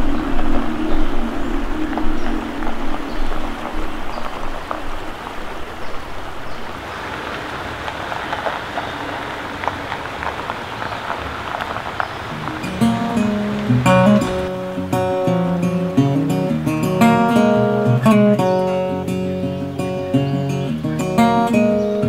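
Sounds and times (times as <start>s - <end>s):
rain falling on foliage: 0.0s - 22.0s
drips ticking: 7.8s - 22.0s.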